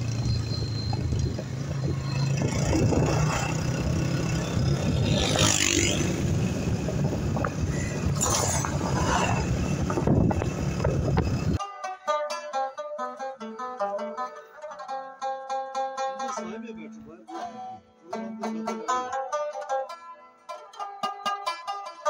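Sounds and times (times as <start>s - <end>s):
road noise rushing: 0.0s - 11.6s
motorcycle engine running: 9.4s - 11.6s.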